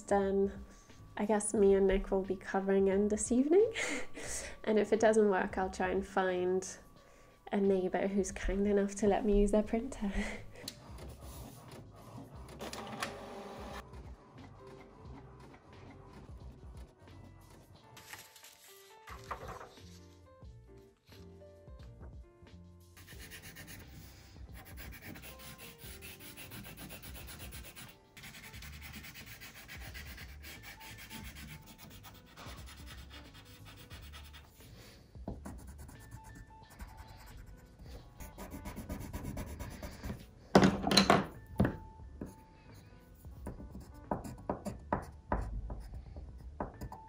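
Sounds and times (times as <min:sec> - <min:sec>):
soft background music: 0:00.0 - 0:47.0
pencil scratching on paper: 0:10.8 - 0:12.5, 0:23.0 - 0:34.7, 0:35.4 - 0:40.3.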